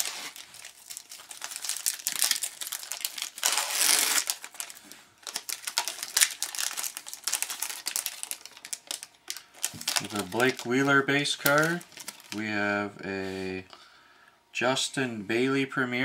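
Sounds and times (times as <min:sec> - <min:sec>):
plastic and foil wrapper crinkling: 0:00.0 - 0:12.5.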